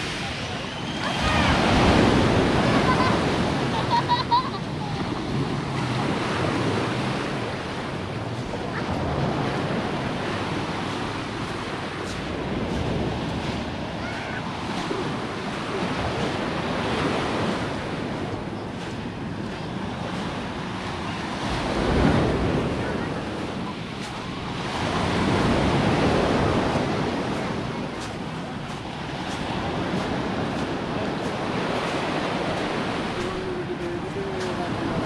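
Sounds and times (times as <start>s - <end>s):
waves washing on pebbly shore: 0.0s - 35.0s
wind buffeting microphone: 0.0s - 35.0s.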